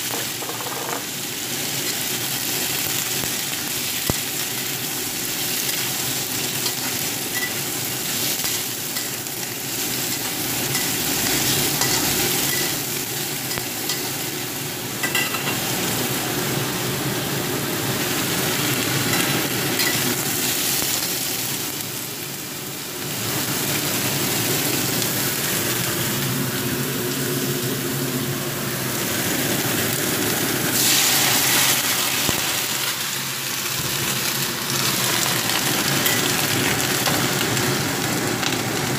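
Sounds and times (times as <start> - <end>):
pepper sizzling in oil: 0.0 - 16.1, 28.9 - 38.1.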